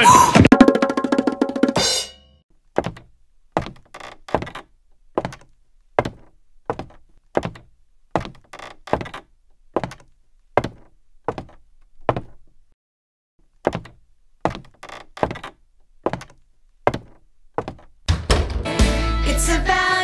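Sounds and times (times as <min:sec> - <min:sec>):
heavy footsteps on wooden floor: 0:02.8 - 0:12.5, 0:13.7 - 0:17.9.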